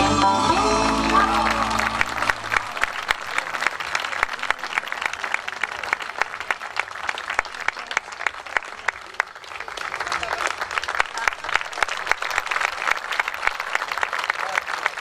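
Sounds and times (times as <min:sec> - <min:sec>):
dance music: 0:00.0 - 0:02.8
audience applauding: 0:00.5 - 0:15.0.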